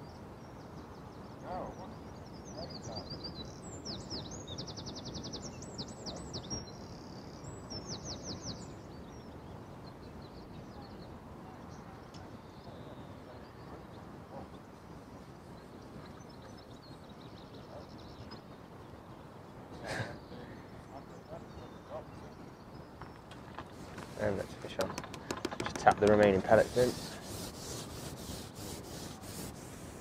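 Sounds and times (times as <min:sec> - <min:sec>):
songbird trilling and chirping: 0:00.0 - 0:14.6, 0:20.2 - 0:29.1
low outdoor background noise: 0:00.0 - 0:30.0.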